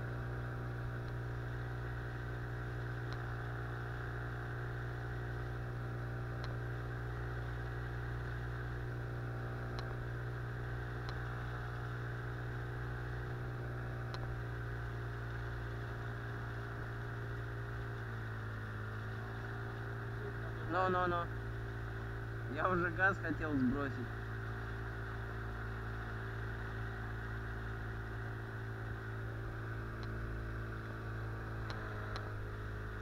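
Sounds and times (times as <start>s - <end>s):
outboard motor droning: 0.0s - 33.0s.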